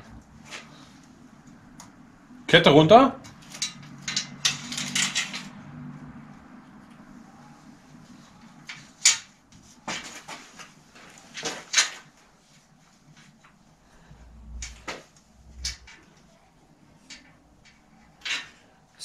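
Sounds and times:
metallic clicks and knocks: 0:03.2 - 0:05.6, 0:14.5 - 0:16.2
bicycle chain clinking and rattling: 0:03.2 - 0:05.9.

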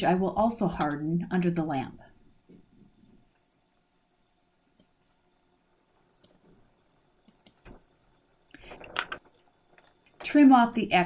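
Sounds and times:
handling noise: 0:08.6 - 0:10.3.

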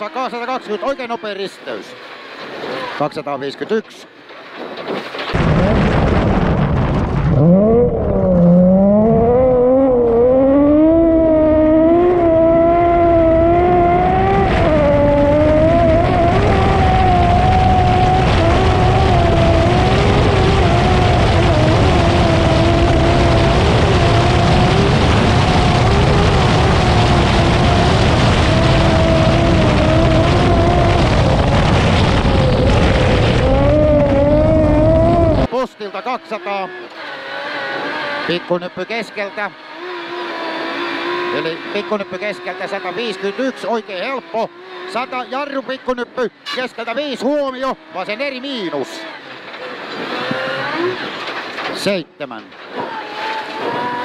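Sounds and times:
rally car engine at full throttle: 0:00.0 - 0:54.0
tyre and road noise: 0:00.0 - 0:54.0.

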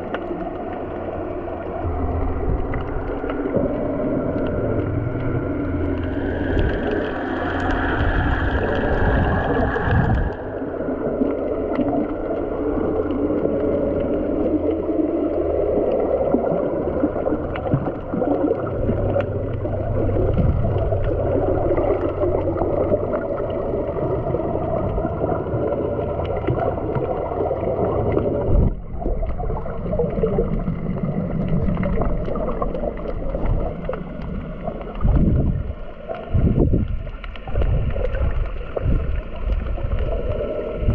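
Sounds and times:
underwater watery rush: 0:00.0 - 0:40.9
faint clicks: 0:29.0 - 0:40.8.

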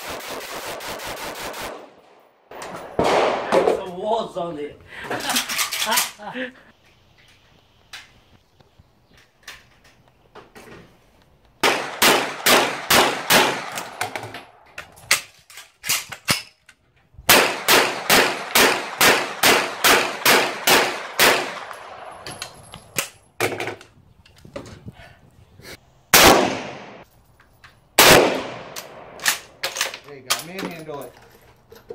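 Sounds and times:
rapid semi-automatic gunfire: 0:00.0 - 0:02.0, 0:11.6 - 0:14.0, 0:17.3 - 0:22.0, 0:28.0 - 0:29.2
fainter gunshot cracks: 0:26.2 - 0:27.0, 0:28.0 - 0:28.8.

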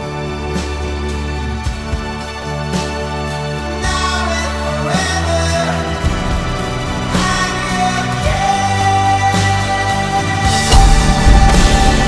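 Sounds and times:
sustained chords: 0:10.3 - 0:12.0
soft low drum hits: 0:10.6 - 0:12.0.

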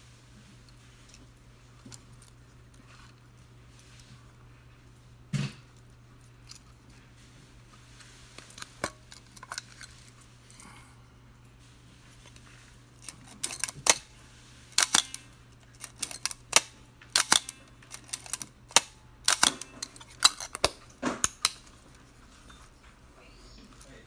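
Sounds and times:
film advance lever winding: 0:13.0 - 0:14.1, 0:14.8 - 0:21.7.

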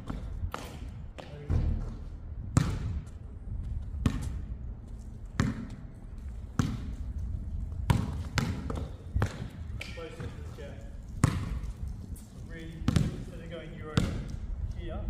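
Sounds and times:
basketball bouncing on hard court: 0:00.0 - 0:03.2, 0:04.0 - 0:04.4, 0:05.4 - 0:05.8, 0:06.4 - 0:07.0, 0:07.9 - 0:10.6, 0:11.2 - 0:11.7, 0:12.8 - 0:14.3
low rumble: 0:01.4 - 0:07.9.

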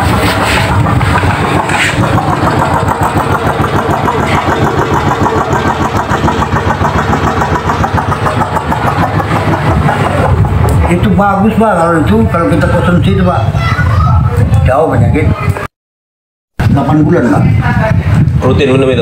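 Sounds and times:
small boat engine idling: 0:00.0 - 0:12.0.

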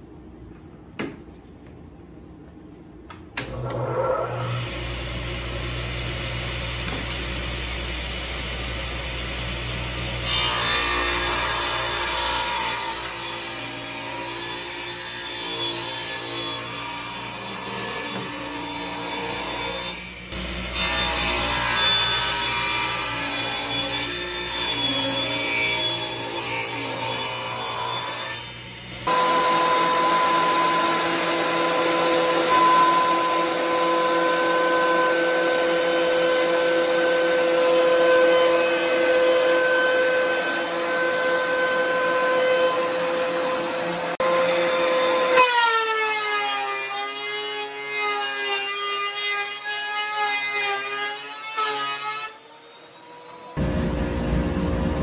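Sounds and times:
thickness planer whine: 0:03.4 - 0:12.8, 0:20.3 - 0:47.0, 0:52.5 - 0:55.0
table saw running: 0:03.5 - 0:45.7.

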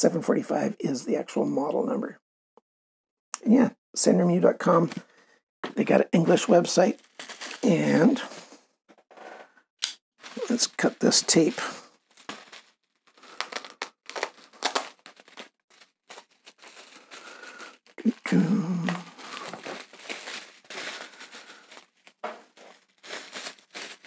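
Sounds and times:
bubble wrap crinkling: 0:06.8 - 0:08.5, 0:10.2 - 0:24.0.

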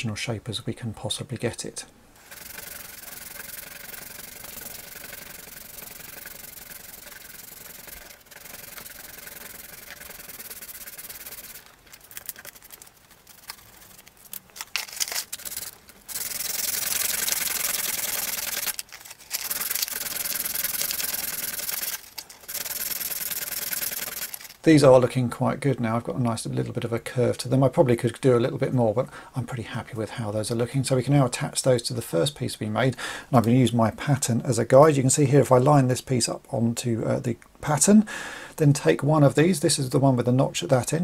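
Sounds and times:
filing and sanding plastic: 0:02.2 - 0:24.6.

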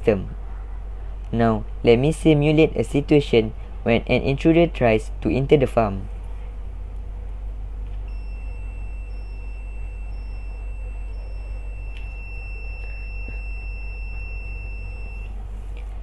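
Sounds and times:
steady low hum: 0:00.0 - 0:16.0
high-pitched alarm buzzer: 0:08.1 - 0:15.4.

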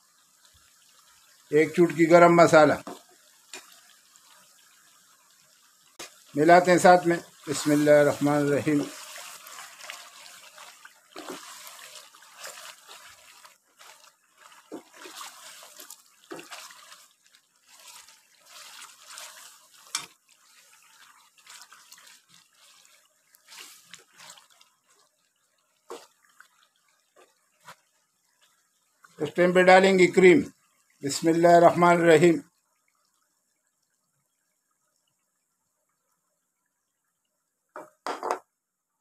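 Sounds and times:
meat sizzling in hot fat: 0:00.0 - 0:30.4
wooden spatula scraping: 0:06.0 - 0:25.2, 0:25.8 - 0:26.6.

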